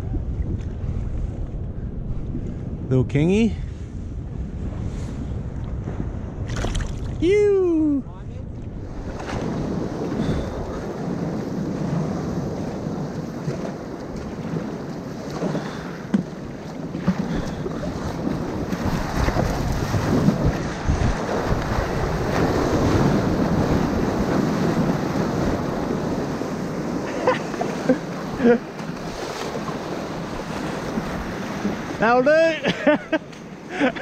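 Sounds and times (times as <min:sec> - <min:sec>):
surf and whitewash rushing: 0:00.0 - 0:34.0
wind buffeting microphone: 0:00.0 - 0:34.0
sharp water splashes: 0:06.4 - 0:07.2.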